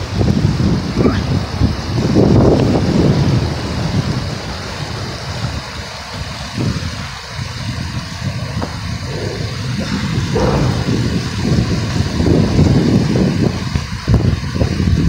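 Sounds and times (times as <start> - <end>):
wind buffeting the microphone: 0.0 - 15.0
freeway traffic rushing: 8.4 - 13.6.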